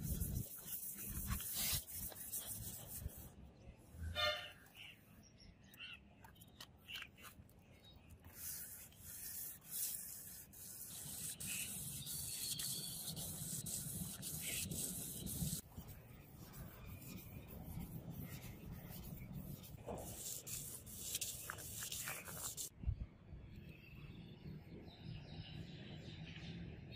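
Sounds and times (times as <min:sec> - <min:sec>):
sandpaper rubbing on steel blade: 0:00.0 - 0:03.2, 0:08.3 - 0:15.6.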